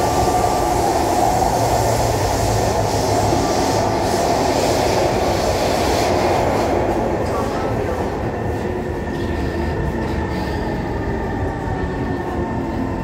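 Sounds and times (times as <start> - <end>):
metro train rumble: 0.0 - 13.0.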